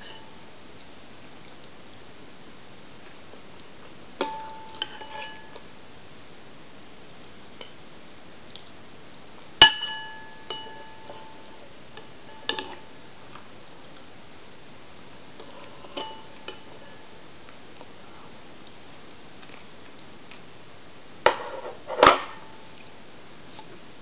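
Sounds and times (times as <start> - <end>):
spoon clinking against bowl: 9.6 - 11.5.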